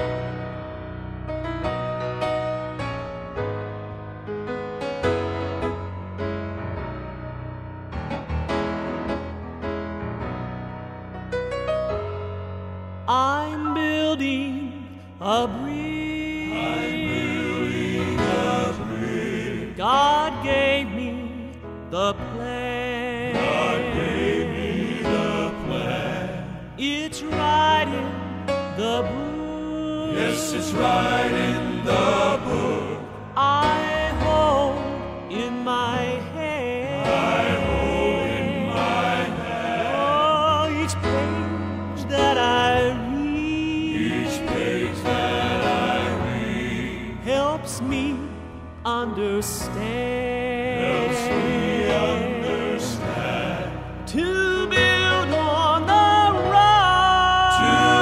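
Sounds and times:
male vocal quartet singing: 13.1s - 58.0s.

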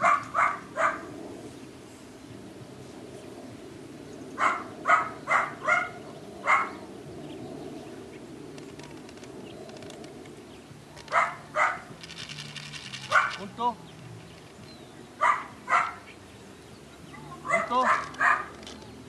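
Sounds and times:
dog barking: 0.0s - 1.0s, 4.4s - 6.8s, 11.1s - 11.9s, 13.1s - 13.4s, 15.2s - 16.1s, 17.4s - 18.5s.

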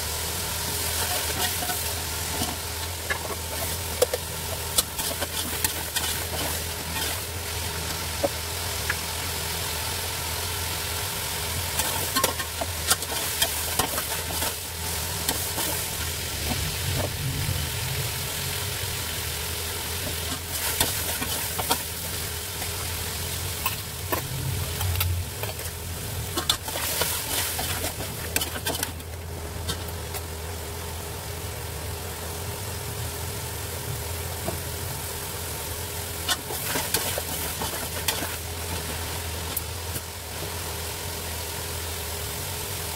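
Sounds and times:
meat sizzling in oil: 0.0s - 42.9s
low hum: 14.6s - 20.6s, 22.0s - 35.2s.

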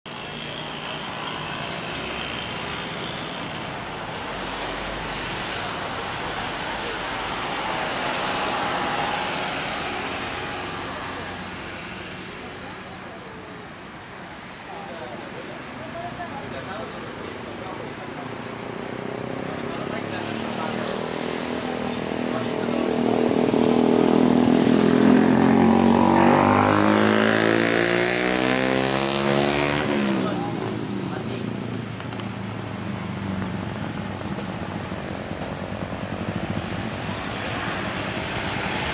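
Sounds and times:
jet engines roaring: 0.2s - 12.6s
jet engine whine: 31.6s - 38.9s.

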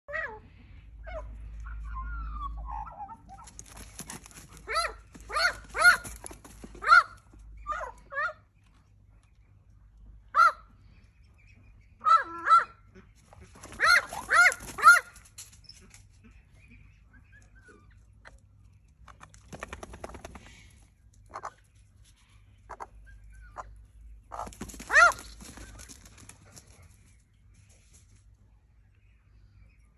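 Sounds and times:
scuffling: 3.4s - 7.2s.

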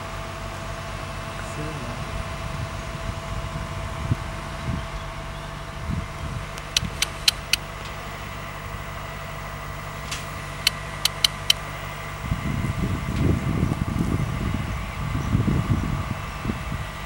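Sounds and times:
crane engine running: 0.0s - 17.0s
wind on microphone: 2.0s - 7.6s, 12.2s - 17.0s
sharp clicks: 6.5s - 8.0s, 10.1s - 11.6s.

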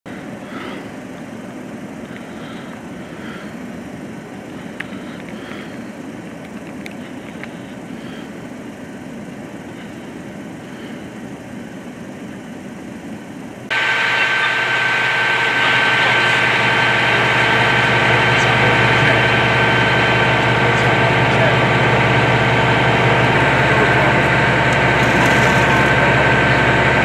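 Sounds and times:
faint clicks: 6.2s - 7.6s
vehicle engine idling: 13.6s - 27.0s.

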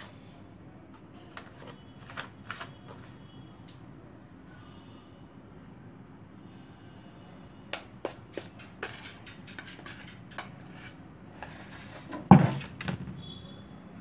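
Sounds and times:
knife clinking and scraping pan: 8.4s - 11.0s.

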